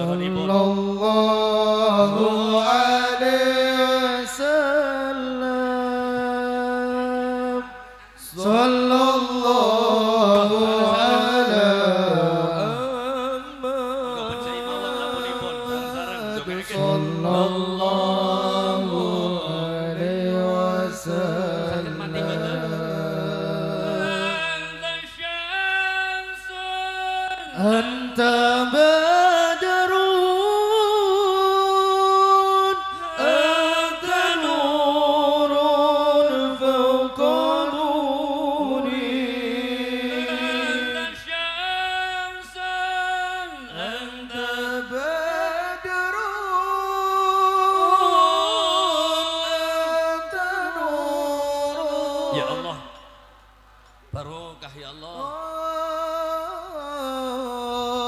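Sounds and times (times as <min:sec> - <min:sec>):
person chanting melismatic phrases: 0:08.4 - 0:25.2, 0:50.4 - 0:53.0.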